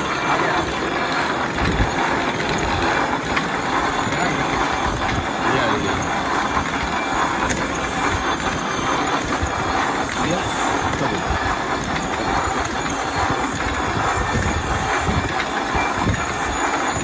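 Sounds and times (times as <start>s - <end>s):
machine clattering: 0.0s - 17.0s.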